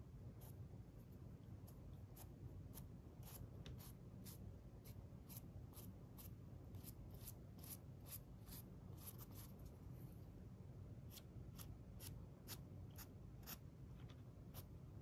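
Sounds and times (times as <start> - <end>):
low steady hum: 0.0 - 15.0
paintbrush strokes: 0.2 - 10.4.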